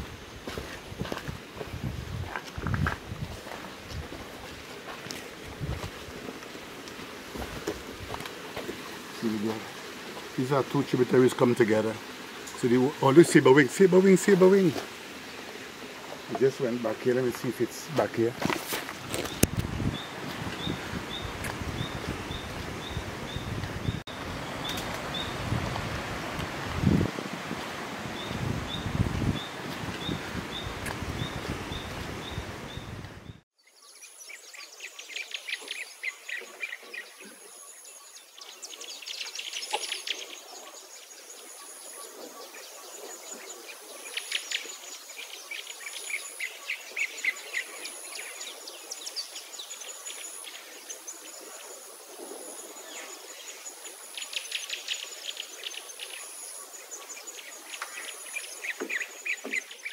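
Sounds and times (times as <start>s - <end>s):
wind buffeting microphone: 0.0s - 4.7s, 5.4s - 6.3s, 19.0s - 33.4s
birds calling and singing: 8.6s - 25.6s, 28.1s - 59.9s
high pulsing insect chirr: 33.6s - 59.9s.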